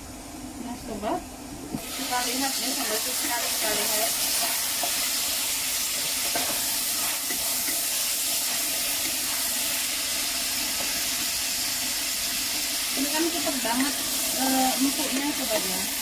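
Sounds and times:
cucumber sizzling in a pan: 1.8 - 16.0.

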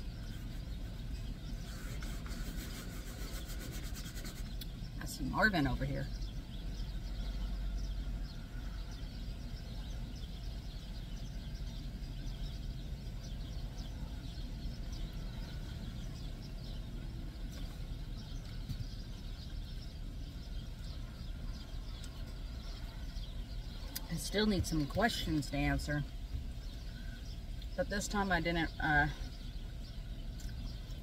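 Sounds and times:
steady low rumble: 0.0 - 31.0.

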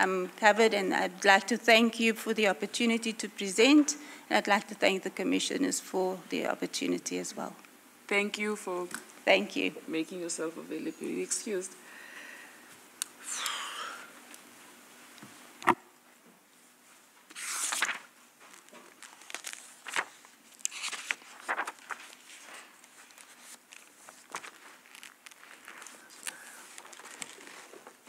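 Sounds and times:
papers rustling: 17.2 - 28.0.

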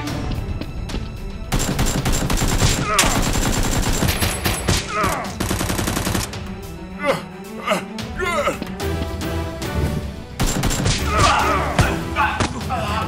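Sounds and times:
background music: 0.0 - 13.0
rapid automatic gunfire: 1.5 - 4.6, 5.4 - 6.3, 10.4 - 10.9.

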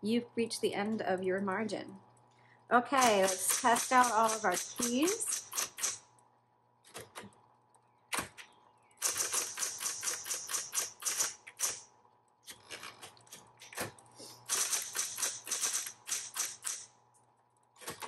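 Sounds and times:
faint motor hum: 0.0 - 18.0
electric typewriter keystrokes: 3.0 - 6.0, 9.0 - 11.9, 12.5 - 16.9.

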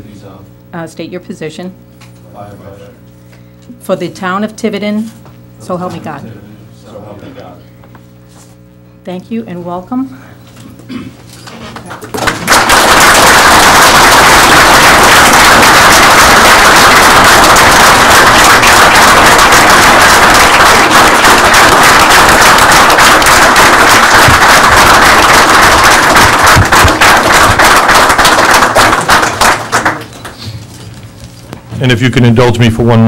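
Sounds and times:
crowd applauding: 12.0 - 30.4.

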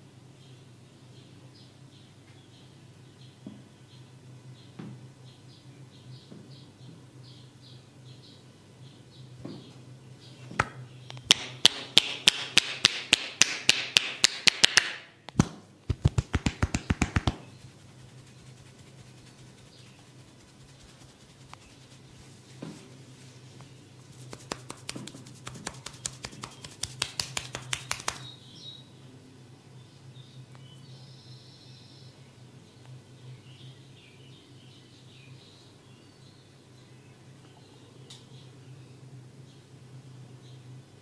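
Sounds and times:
faint steady hum: 0.0 - 41.0
percussive massage tapping: 10.6 - 17.5, 24.2 - 28.3.

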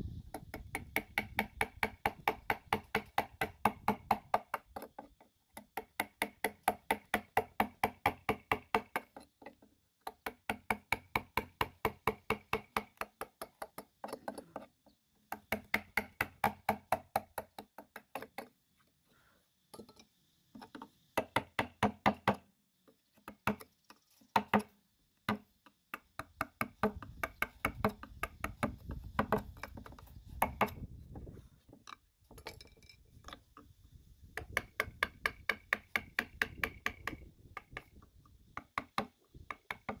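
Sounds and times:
mallet tapping a gouge into wood: 0.3 - 5.0, 34.4 - 38.0.

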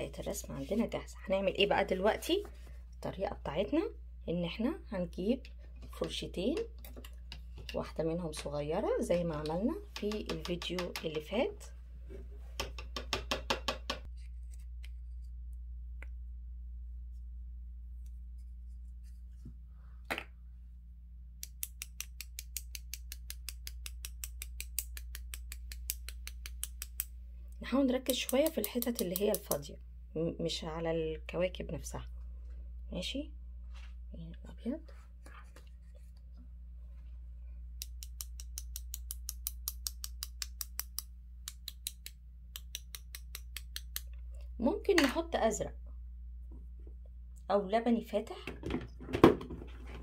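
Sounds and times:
low steady hum: 0.0 - 13.2, 14.0 - 50.0.

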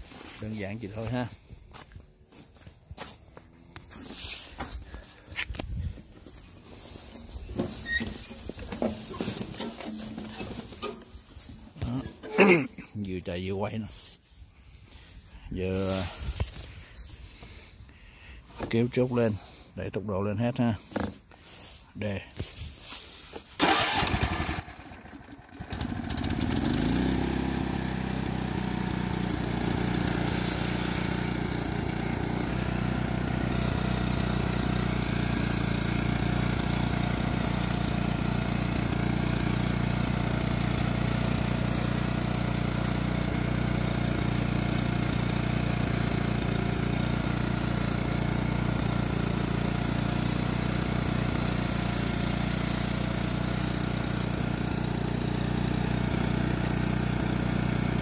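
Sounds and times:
lawn tractor engine revving: 7.1 - 12.7, 23.6 - 58.0.

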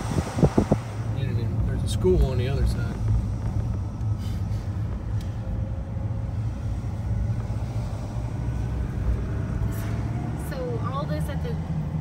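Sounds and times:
car engine and tyres drone: 0.0 - 12.0.

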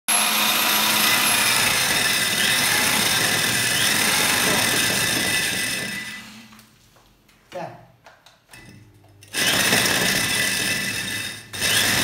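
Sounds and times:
core drill grinding into wall: 0.1 - 6.5, 9.2 - 12.0.

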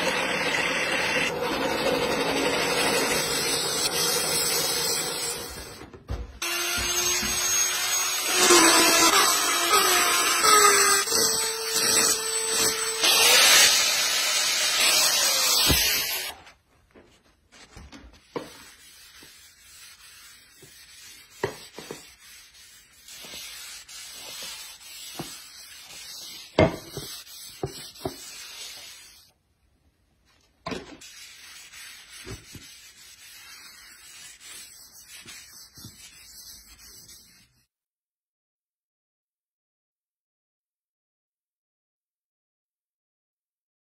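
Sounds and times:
cloth rubbing on wood: 17.2 - 29.2, 31.0 - 37.6
hand gouge scraping wood: 17.6 - 29.3, 31.0 - 37.6.

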